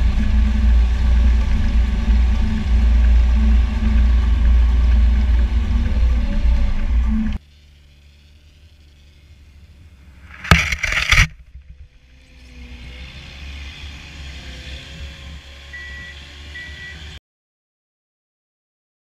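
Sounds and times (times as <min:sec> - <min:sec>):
snowcat engine and tracks: 0:00.0 - 0:17.2
snowcat engine rumble: 0:00.0 - 0:17.2
faint short beeps: 0:15.8 - 0:17.0.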